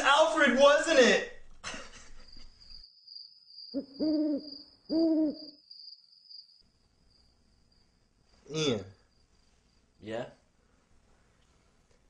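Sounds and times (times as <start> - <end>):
cricket trill: 1.6 - 10.5
owl hooting: 3.7 - 5.7.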